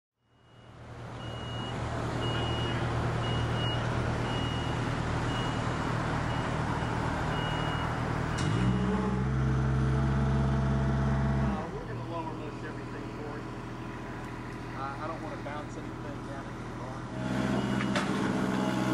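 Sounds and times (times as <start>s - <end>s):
reversing alarm beeping: 0.2s - 9.1s, 17.2s - 18.9s
truck engine running: 0.4s - 18.9s.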